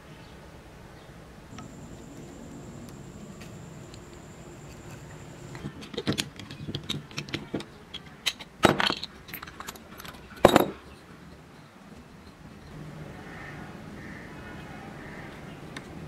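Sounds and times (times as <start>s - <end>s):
metal clamp clicks and knocks: 5.6s - 10.8s.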